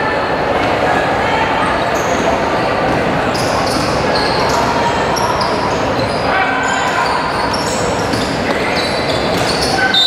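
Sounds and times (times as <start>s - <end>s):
crowd chatter: 0.0s - 10.0s
shoes squeaking: 7.4s - 10.0s.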